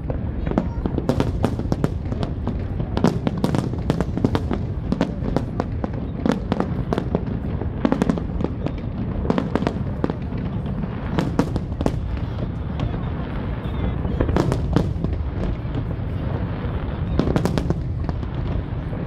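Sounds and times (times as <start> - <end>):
fireworks bangs and crackling: 0.0 - 19.0
low rumble of explosions: 0.0 - 19.0.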